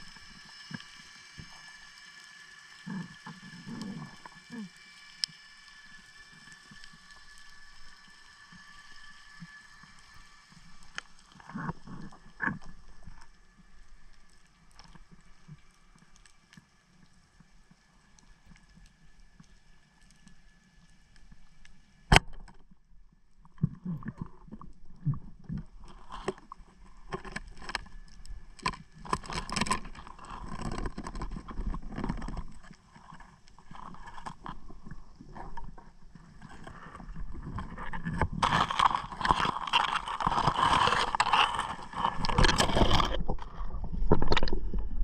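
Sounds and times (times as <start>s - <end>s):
knocks and scrapes against rock: 25.0s - 45.0s.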